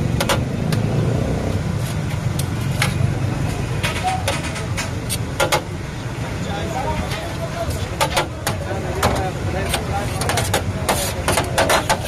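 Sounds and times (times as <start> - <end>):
street traffic rumble: 0.0 - 12.0
knife scraping meat spit: 9.6 - 12.0.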